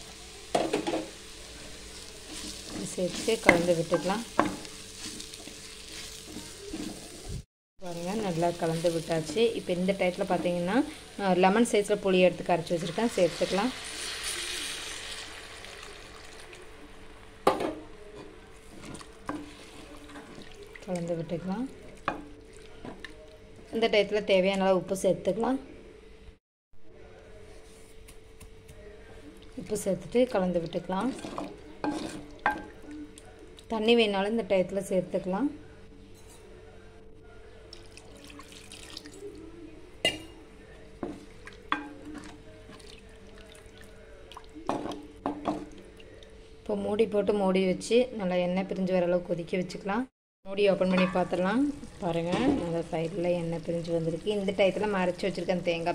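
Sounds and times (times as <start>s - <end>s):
curry bubbling: 18.6s - 23.4s, 37.7s - 39.5s, 41.1s - 46.3s.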